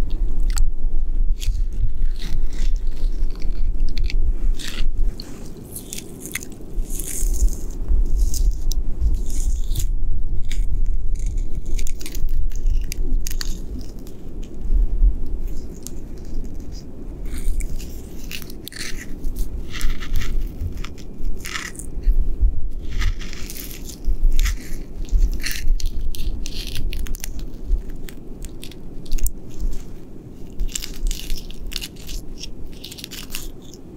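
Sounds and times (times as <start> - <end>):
steady low rumble: 0.0 - 33.9
fingers scratching tree bark: 1.4 - 33.9.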